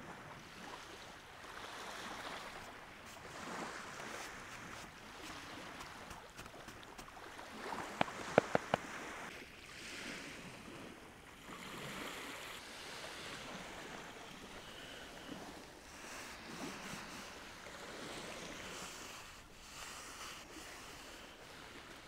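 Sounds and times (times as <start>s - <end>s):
waves washing in: 0.0s - 22.0s.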